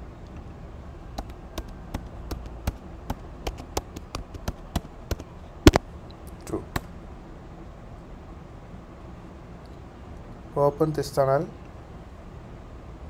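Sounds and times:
keyboard typing clicks: 1.2 - 5.8.

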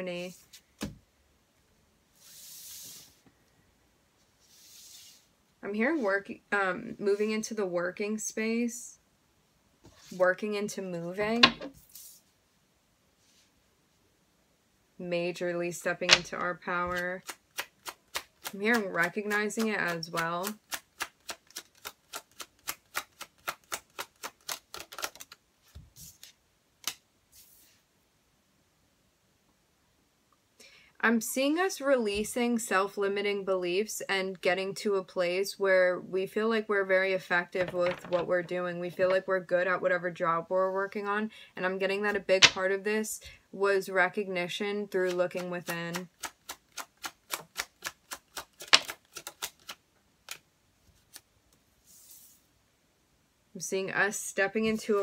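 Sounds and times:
cards shuffling: 16.0 - 27.8, 37.6 - 38.4, 42.1 - 42.7, 45.0 - 51.3
sharp card snap: 45.9 - 49.7.

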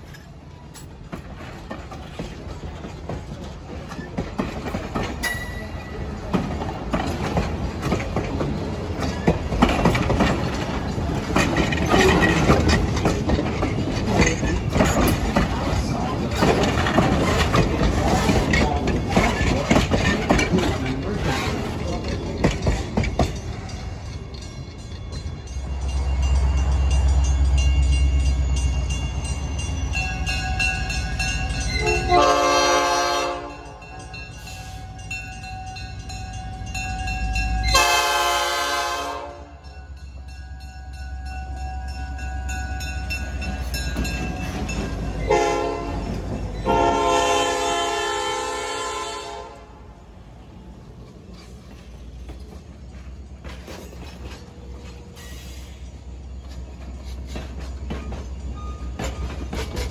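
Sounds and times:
locomotive engine rumble: 0.0 - 59.9
train cars rolling past: 0.0 - 59.9
train air horn blasts: 31.8 - 33.6, 37.7 - 39.6, 45.3 - 49.8.

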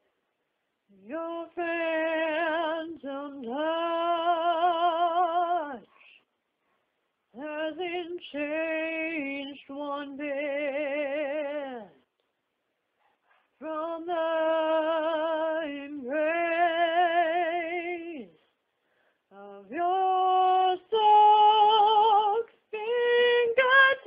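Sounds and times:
woman singing unaccompanied: 0.9 - 6.2, 7.3 - 12.1, 13.5 - 18.5, 19.3 - 24.0.

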